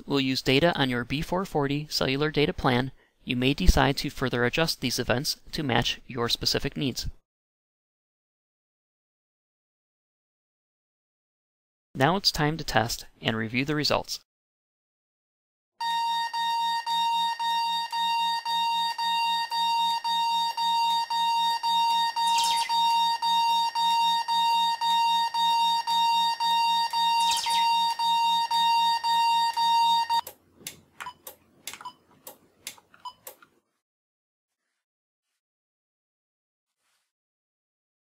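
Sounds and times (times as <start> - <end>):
pulsing alarm beeps: 15.8 - 30.2.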